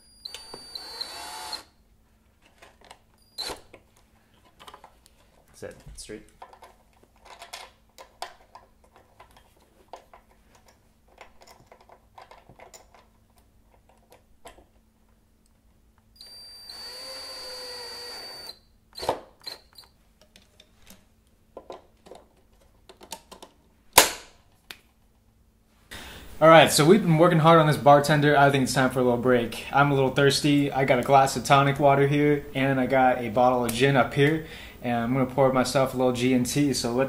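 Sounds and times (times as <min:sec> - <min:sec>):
cordless drill driving screw: 0:00.2 - 0:01.7, 0:03.3 - 0:03.7, 0:16.2 - 0:19.9
small parts clicking and rattling: 0:02.4 - 0:14.7.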